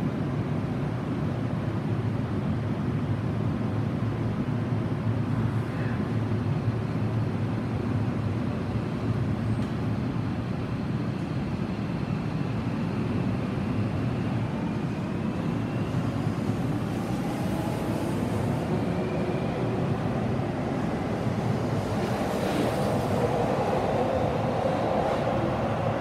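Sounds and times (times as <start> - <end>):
electric train rumble: 0.0 - 26.0
train whine rising in pitch: 14.2 - 26.0.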